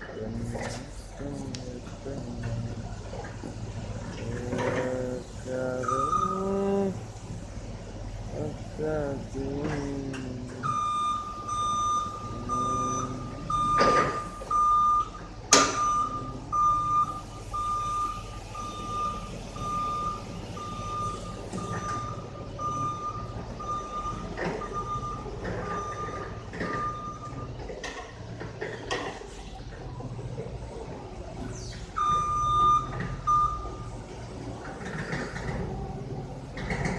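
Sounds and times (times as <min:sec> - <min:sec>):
reach truck warning beeps: 0:03.9 - 0:07.0, 0:08.4 - 0:28.0, 0:31.9 - 0:34.1.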